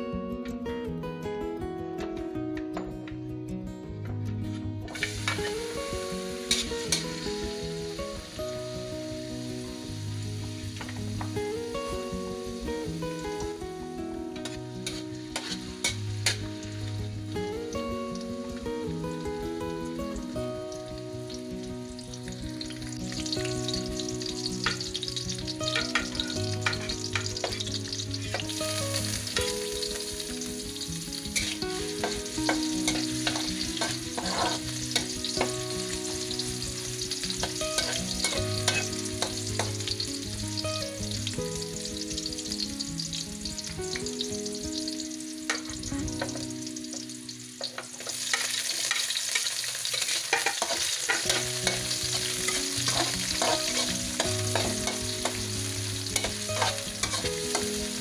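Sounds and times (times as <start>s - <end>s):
garlic sizzling in hot oil: 4.9s - 58.0s
spatula scraping a wok: 14.4s - 16.4s, 31.4s - 35.4s, 37.5s - 39.7s, 47.7s - 55.4s, 56.2s - 57.6s.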